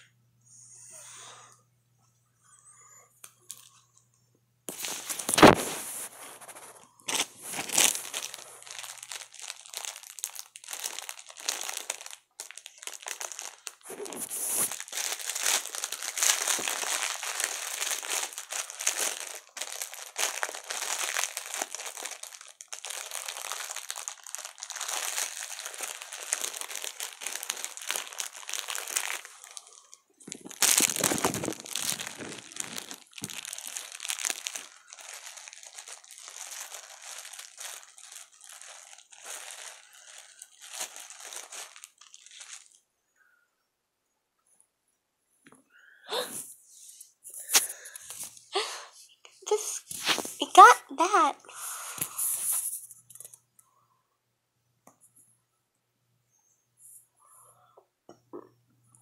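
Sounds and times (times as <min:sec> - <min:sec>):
packaging crinkling and tearing: 0:04.7 - 0:42.8, 0:47.3 - 0:48.8, 0:49.5 - 0:53.4.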